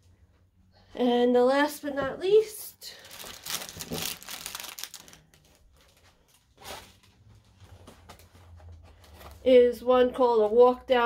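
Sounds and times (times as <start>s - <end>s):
plastic bag crinkling: 2.9s - 8.4s.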